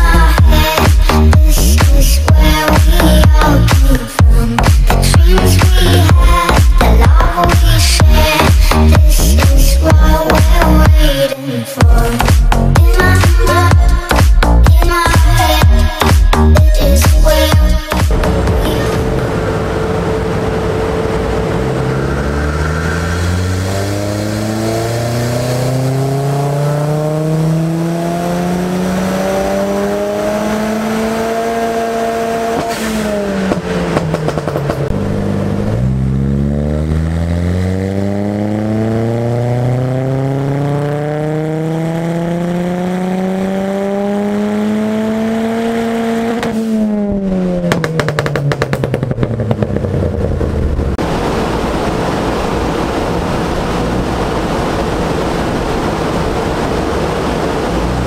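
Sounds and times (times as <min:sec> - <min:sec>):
car engine revving on dyno: 0:18.1 - 0:58.0
exhaust pops and crackles: 0:32.5 - 0:35.2, 0:47.6 - 0:51.0.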